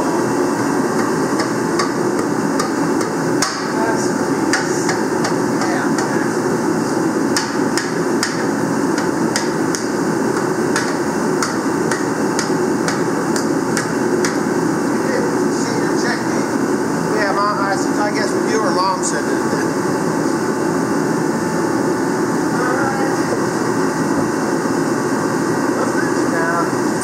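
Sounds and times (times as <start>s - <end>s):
mallet striking metal: 2.6s - 3.7s.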